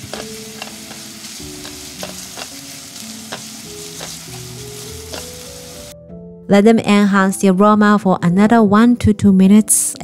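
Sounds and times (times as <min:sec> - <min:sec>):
utensil clicking against pot: 0:00.0 - 0:01.0
food sizzling in oil: 0:00.0 - 0:06.0.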